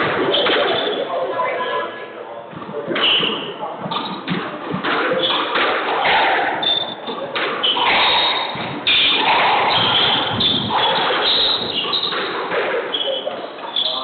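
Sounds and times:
squash ball hit with rackets: 2.5 - 13.2
shoes squeaking on hardwood floor: 2.5 - 14.0.

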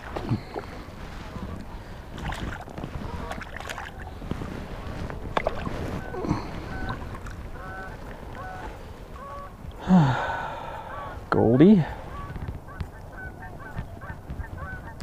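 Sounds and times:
fish splashing and thrashing: 0.0 - 10.7
geese honking: 5.6 - 9.7, 10.4 - 15.0.

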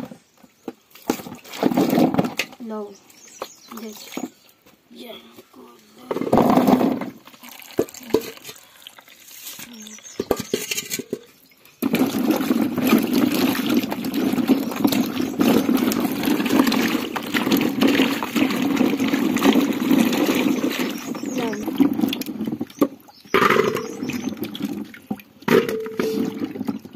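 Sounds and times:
water sloshing in a basin: 0.4 - 4.7, 6.1 - 26.9
potatoes rubbing and knocking: 9.2 - 26.9.

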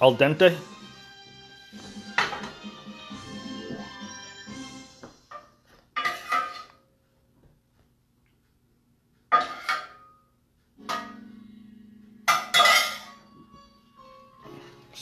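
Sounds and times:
metal spoon clanking on pot: 6.0 - 6.8, 9.3 - 10.2, 12.2 - 13.2.

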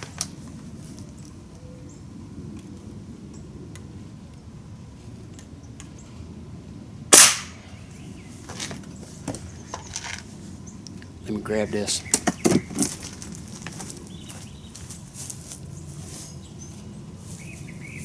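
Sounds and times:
air rifle shot: 7.1 - 7.7.

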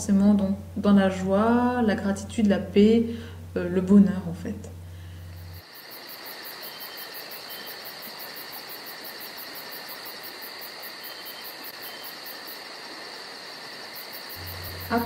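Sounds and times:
steady hiss: 4.7 - 15.0
insects chirping: 4.8 - 15.0.

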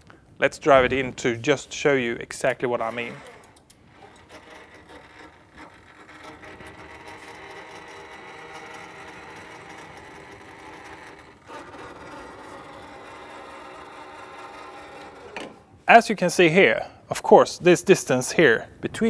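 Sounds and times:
crane electric motor humming: 2.8 - 15.8.

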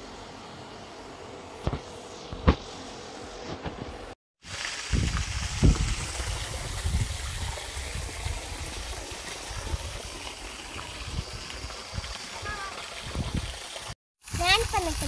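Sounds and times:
open air hiss: 0.0 - 15.0
wind buffeting microphone: 4.9 - 13.6.

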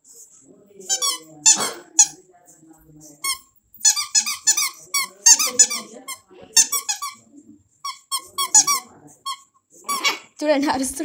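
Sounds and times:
squeaky dog toy squeaking: 0.9 - 2.2, 3.2 - 7.2, 7.8 - 10.3.

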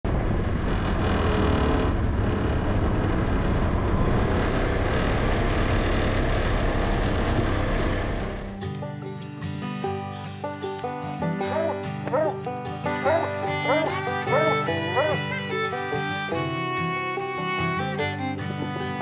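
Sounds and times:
vehicle engine running: 0.0 - 8.6.

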